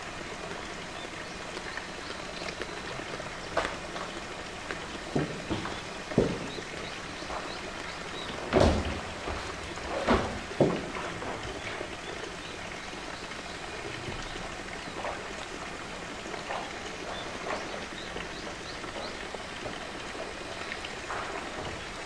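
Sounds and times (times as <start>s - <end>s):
hollow knock on plastic drum: 5.1s - 11.1s.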